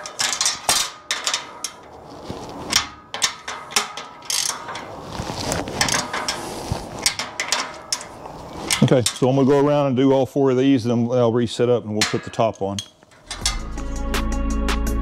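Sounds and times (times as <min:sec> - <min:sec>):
small metal knocks: 0:00.0 - 0:02.0, 0:02.7 - 0:05.0, 0:05.8 - 0:09.5, 0:12.0 - 0:13.8
ratchet wrench clicking: 0:03.2 - 0:04.7, 0:13.2 - 0:13.7.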